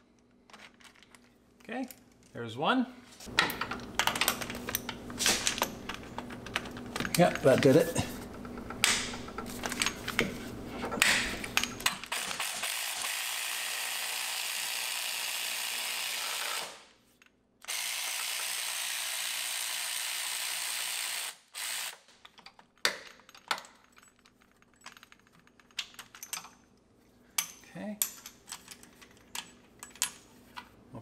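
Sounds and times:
electric ratchet motor running: 0:12.1 - 0:16.8, 0:17.7 - 0:22.0.

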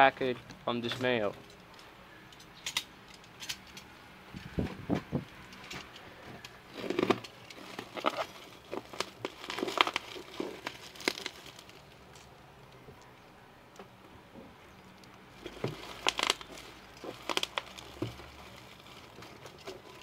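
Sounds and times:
plastic mailer tearing and crinkling: 0:06.6 - 0:12.2, 0:15.3 - 0:20.0.

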